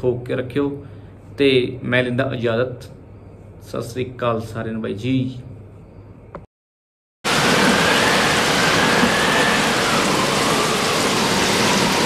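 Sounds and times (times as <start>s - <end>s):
loud steady rushing noise: 7.3s - 12.0s.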